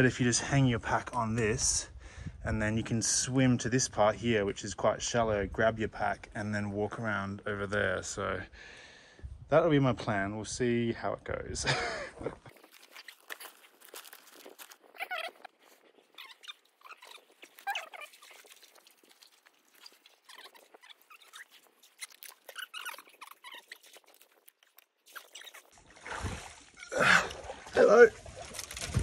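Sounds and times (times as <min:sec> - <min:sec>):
backpack rustling and scraping: 0:12.5 - 0:24.5.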